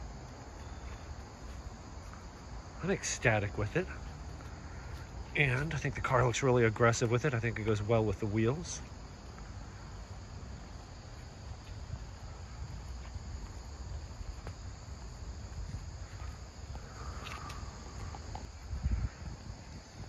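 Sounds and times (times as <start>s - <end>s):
insects chirping: 0.0s - 20.0s.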